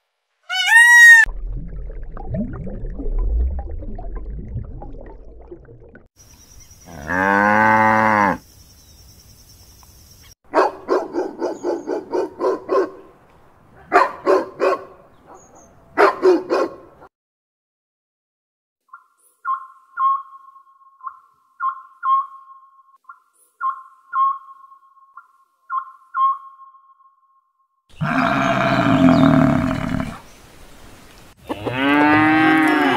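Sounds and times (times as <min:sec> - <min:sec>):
low rumbling water: 0:01.3 - 0:06.1
cow mooing: 0:06.9 - 0:08.4, 0:28.0 - 0:30.2, 0:31.5 - 0:32.9
dog barking: 0:10.5 - 0:13.1, 0:13.8 - 0:16.9.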